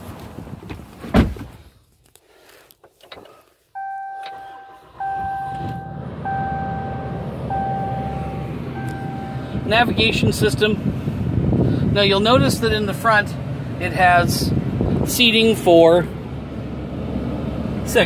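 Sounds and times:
thud inside truck cab: 0.5 - 1.6
low engine rumble: 3.3 - 18.0
dashboard warning chime beeps: 3.8 - 9.5.

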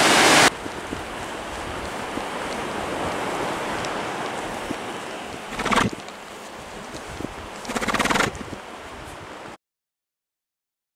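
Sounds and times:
surf washing: 0.0 - 9.6
wind: 0.0 - 9.6
horse snorting: 5.5 - 6.0, 7.6 - 8.5.

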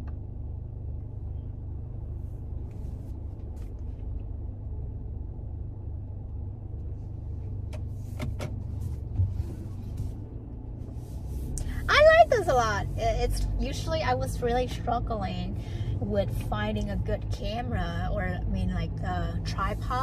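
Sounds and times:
car engine rumble inside cabin: 0.0 - 20.0.

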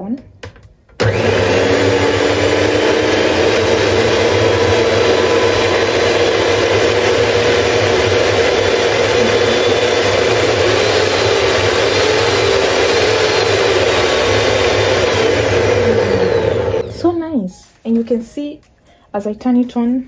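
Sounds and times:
stand mixer motor whine: 1.0 - 17.0.

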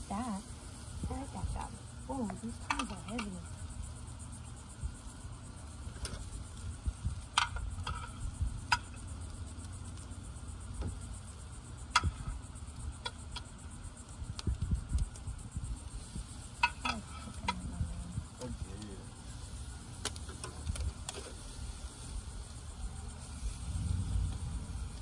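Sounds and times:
metal tongs clinking on grill grate: 2.3 - 3.5, 16.6 - 17.7
low rumble: 22.7 - 25.0.

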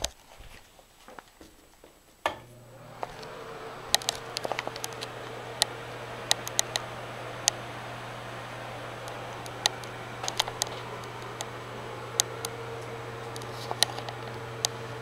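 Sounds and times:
exhaust fan humming: 2.3 - 15.0
light ticks: 3.0 - 7.7, 8.9 - 14.8.

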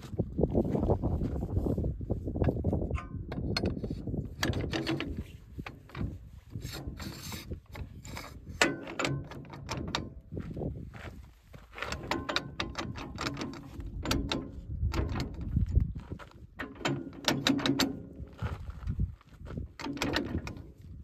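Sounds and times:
metal clicks and clanks: 2.4 - 10.3, 11.8 - 18.8, 19.6 - 21.0.

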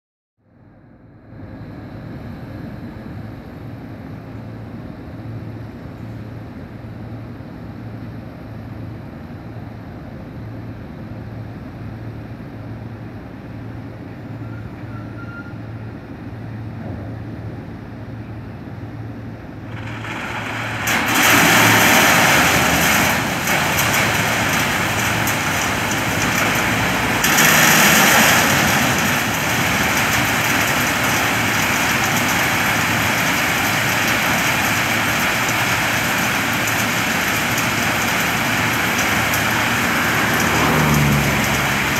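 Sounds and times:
diesel locomotive engine throbbing: 0.6 - 41.9
crushed stone pouring into wagon: 19.7 - 41.9.

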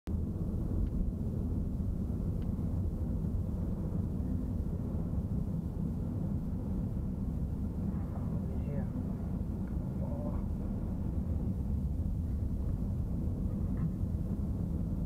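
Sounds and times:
vehicle engine and road rumble: 0.1 - 15.0.

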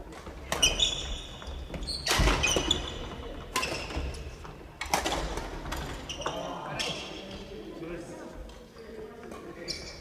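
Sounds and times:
sports shoes squeaking: 0.5 - 4.3, 5.9 - 7.4, 9.6 - 10.0.

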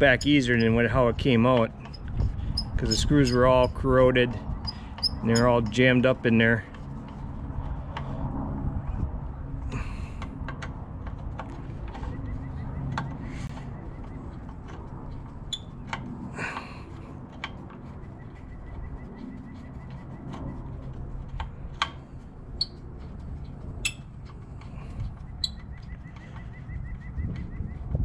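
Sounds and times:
birds chirping: 12.0 - 14.5, 24.7 - 28.0.

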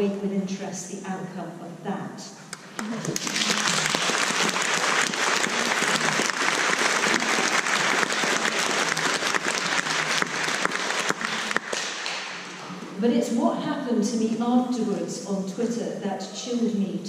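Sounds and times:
audience applauding: 2.7 - 12.6.

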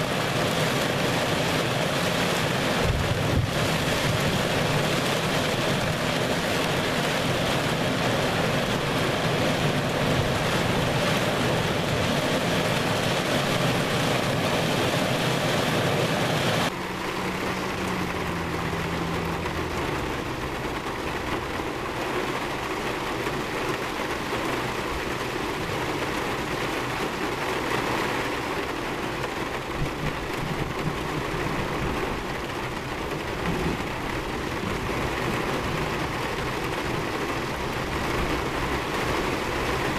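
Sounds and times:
heavy rain on a car: 0.0 - 39.9
wind against a car: 0.3 - 22.0
vehicle low hum: 16.7 - 22.9.

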